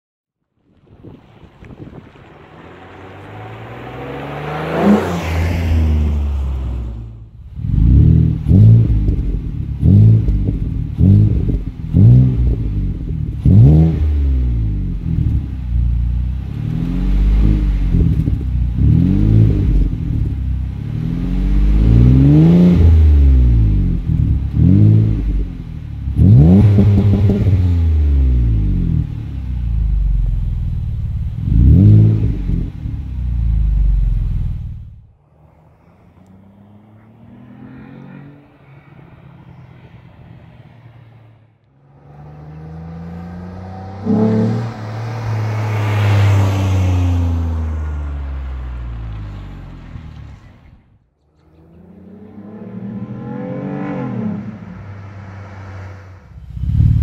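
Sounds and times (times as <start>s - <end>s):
car accelerating past: 1.1s - 12.7s, 31.4s - 57.0s
car engine revving: 1.3s - 57.0s.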